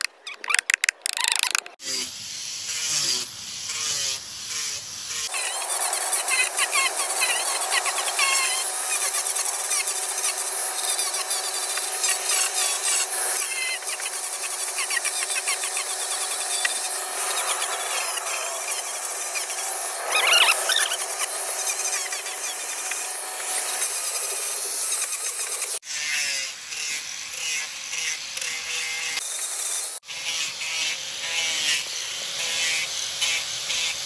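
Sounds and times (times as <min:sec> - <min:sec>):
angle grinder sanding wood: 0:01.8 - 0:25.8.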